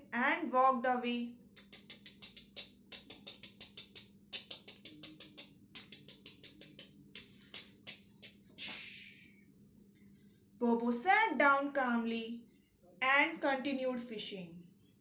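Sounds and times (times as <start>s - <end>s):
light dry percussive taps: 1.6s - 8.4s.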